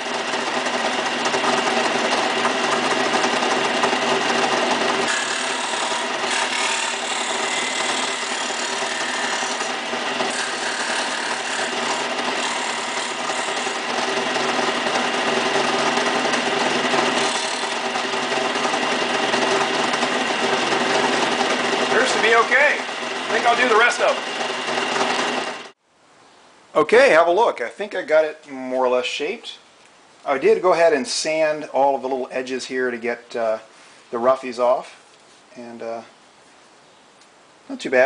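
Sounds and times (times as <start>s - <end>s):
sander motor running: 0.0s - 25.8s.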